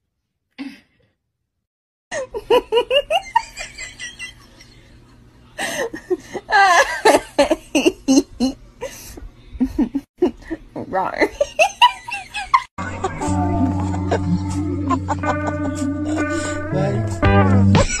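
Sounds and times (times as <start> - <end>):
person laughing: 2.1 - 4.9, 11.3 - 18.0.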